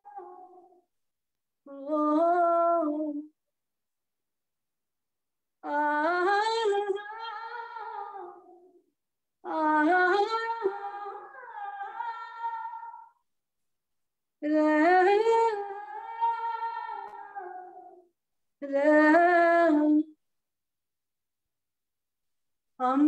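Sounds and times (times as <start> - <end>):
woman singing unaccompanied: 0.0 - 0.8, 1.6 - 3.4, 5.6 - 8.8, 9.4 - 13.2, 14.4 - 20.2, 22.8 - 23.0.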